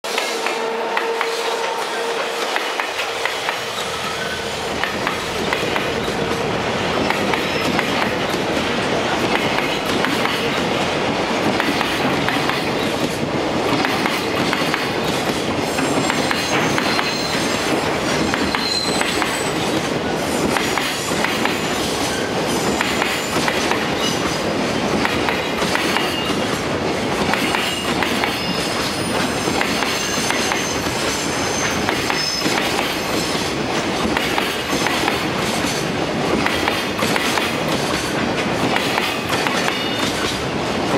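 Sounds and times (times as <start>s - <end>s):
train wheels clattering over rail joints: 2.5s - 40.9s
high wheel squeals: 15.7s - 17.6s, 18.5s - 19.6s, 28.4s - 33.2s.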